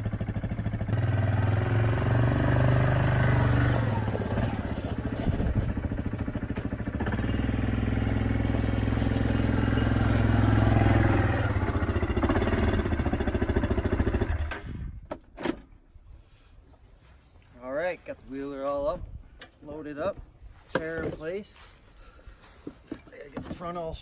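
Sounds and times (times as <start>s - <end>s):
atv engine running: 0.0s - 14.8s.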